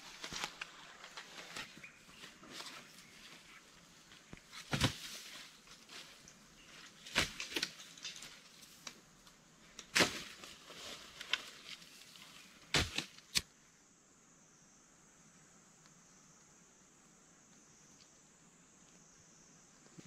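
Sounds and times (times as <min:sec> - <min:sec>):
rustling: 0:00.0 - 0:09.0, 0:09.7 - 0:13.4
faint high hiss: 0:00.0 - 0:20.0.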